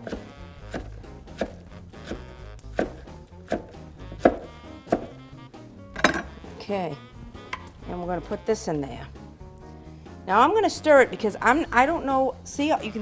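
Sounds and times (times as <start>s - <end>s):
knife chopping on wooden board: 0.0s - 5.2s.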